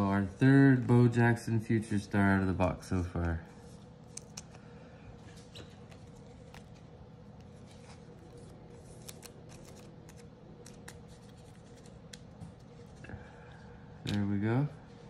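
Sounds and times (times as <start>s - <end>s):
card scraping: 5.3s - 13.0s.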